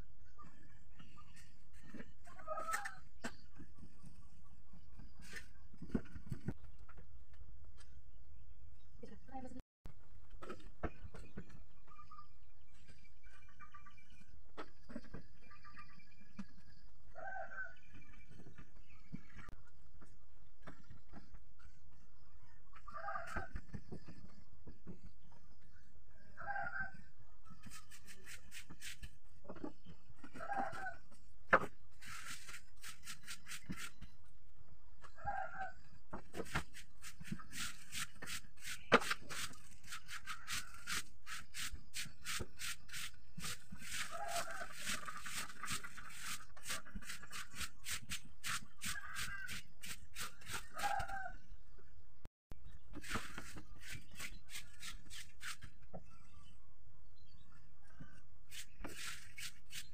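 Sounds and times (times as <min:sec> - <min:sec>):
chicken clucking: 0:29.4 - 0:31.2, 0:43.8 - 0:47.9, 0:48.6 - 0:51.4.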